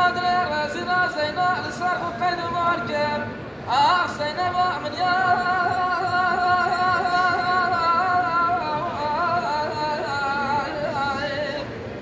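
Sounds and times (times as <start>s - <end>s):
man singing unaccompanied: 0.0s - 11.8s.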